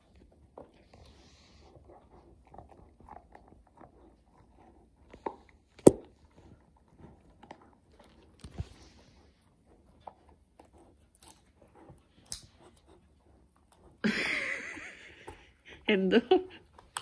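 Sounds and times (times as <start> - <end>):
dog gnawing on chew bone: 0.0 - 14.0.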